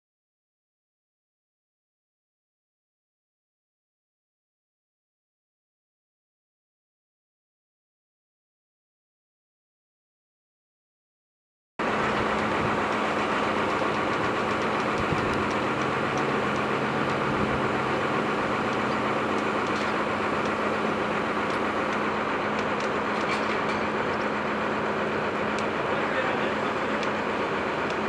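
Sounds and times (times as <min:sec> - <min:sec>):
boat engine humming: 0:11.8 - 0:28.0
faint ticking: 0:11.8 - 0:28.0.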